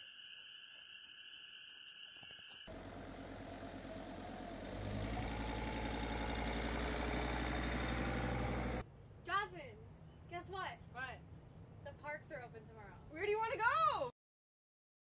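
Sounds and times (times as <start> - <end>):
van driving past on dirt track: 2.7 - 8.8.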